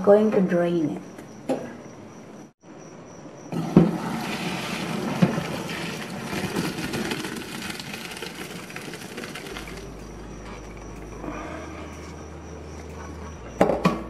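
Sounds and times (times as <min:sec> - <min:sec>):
water splashing into metal sink: 0:03.6 - 0:09.9.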